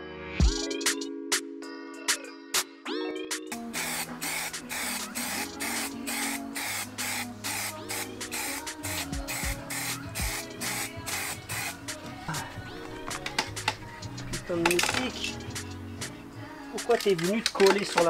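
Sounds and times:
background music: 0.0 - 18.0
spray can hissing: 3.5 - 12.1.

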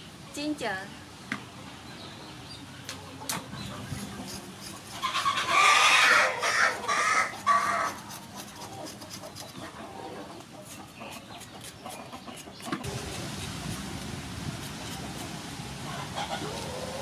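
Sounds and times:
spoon scraping ginger peel: 3.9 - 5.6, 6.9 - 9.6
chicken calling loudly: 5.0 - 8.0.

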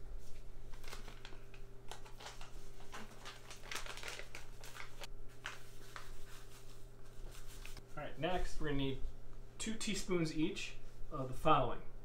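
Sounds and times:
packet crinkling: 0.3 - 7.8.

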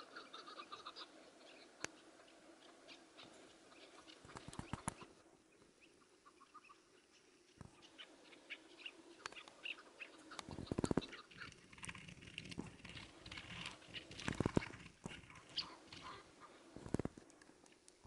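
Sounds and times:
partridges chirping and clucking: 0.0 - 12.0, 12.8 - 17.1
rapid flutter-like knocks: 4.1 - 5.1, 10.4 - 16.1.

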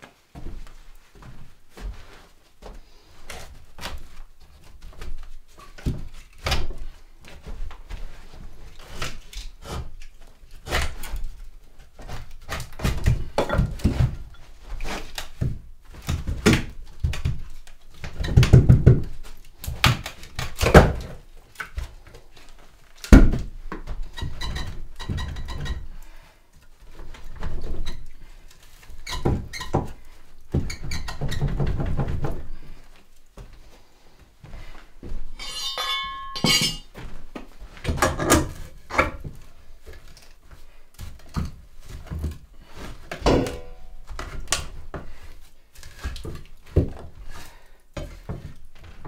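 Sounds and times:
wooden knocks and thuds: 12.5 - 14.4, 15.4 - 19.2, 23.1 - 25.8, 29.1 - 32.6, 43.1 - 43.8.

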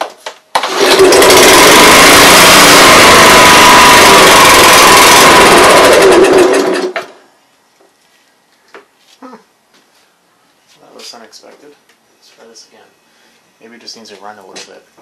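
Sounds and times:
lawn mower engine running: 0.5 - 7.2.

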